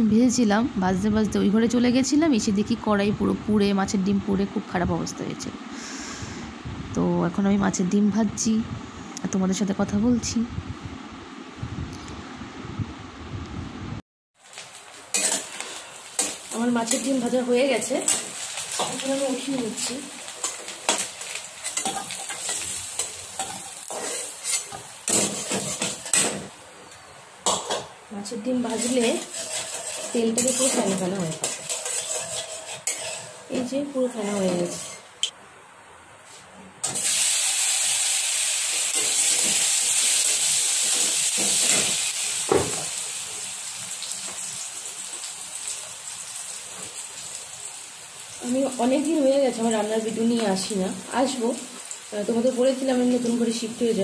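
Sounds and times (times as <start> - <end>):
fish roe sizzling in oil: 14.4 - 35.1, 36.8 - 54.0
spatula scraping a pan: 15.1 - 17.2, 20.4 - 26.4, 28.7 - 35.1.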